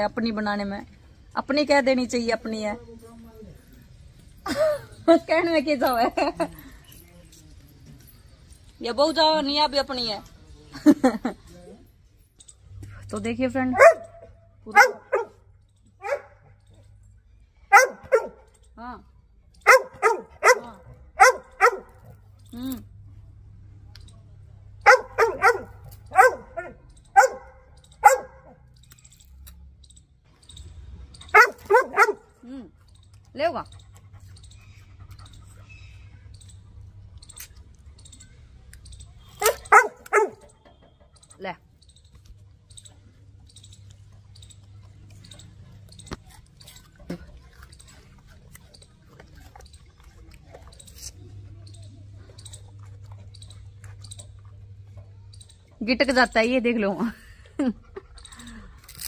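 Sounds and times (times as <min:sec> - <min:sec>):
dog barking: 0:13.8 - 0:15.4, 0:16.0 - 0:16.4, 0:17.7 - 0:18.5, 0:19.6 - 0:22.1, 0:24.8 - 0:28.6, 0:31.3 - 0:32.3, 0:39.4 - 0:40.5
person chewing sugarcane: 0:43.2 - 0:55.0, 0:58.1 - 0:59.0.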